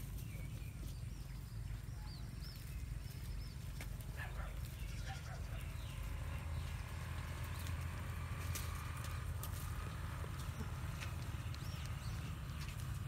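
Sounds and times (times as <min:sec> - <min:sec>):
steady low rumble: 0:00.0 - 0:13.0
leaves rustling: 0:01.6 - 0:13.0.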